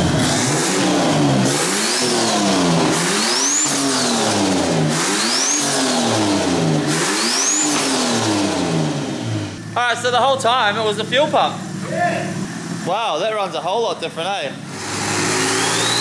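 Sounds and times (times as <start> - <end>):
car engine revving: 0.0 - 12.9, 14.5 - 16.0
turbo whistle: 15.4 - 16.0.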